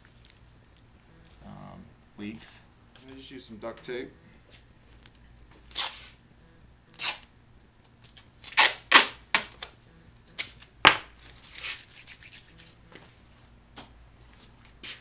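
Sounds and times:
duct tape ripping: 5.0s - 6.2s, 6.9s - 9.7s, 10.3s - 12.7s.

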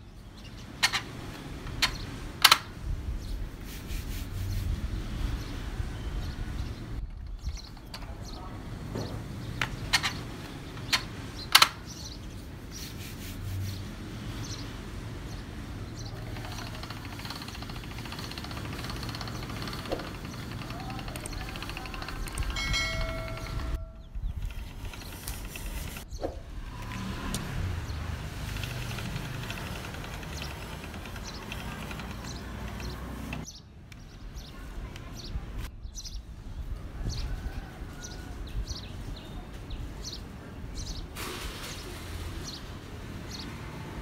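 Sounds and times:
hands rubbing dough: 3.6s - 4.8s, 12.7s - 13.9s
pasta machine grinding and ticking: 16.2s - 23.8s, 28.4s - 33.4s.

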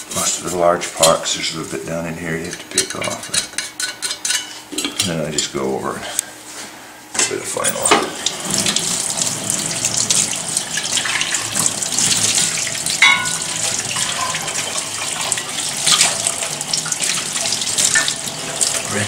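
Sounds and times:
tap water running into sink: 7.9s - 19.0s.

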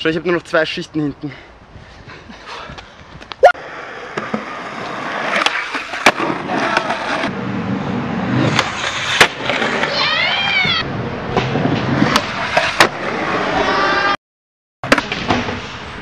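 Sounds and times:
skateboard wheels rumbling on pavement: 2.5s - 14.2s.

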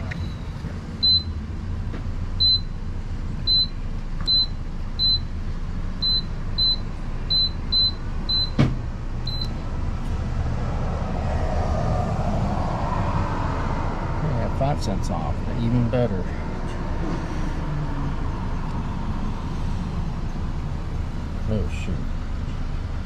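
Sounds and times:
keypad beeps: 6.0s - 8.6s, 9.3s - 9.5s.

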